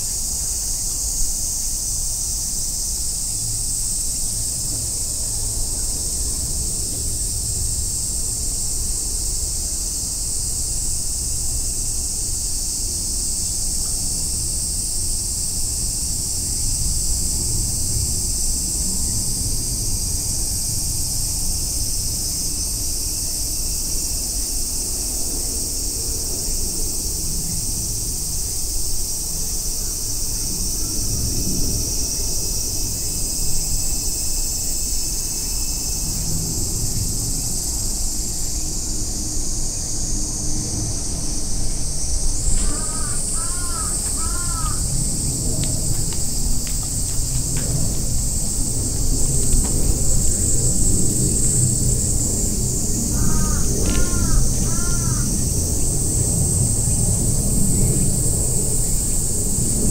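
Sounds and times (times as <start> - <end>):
cicadas singing: 0.0 - 59.9
low rumble: 44.8 - 53.8.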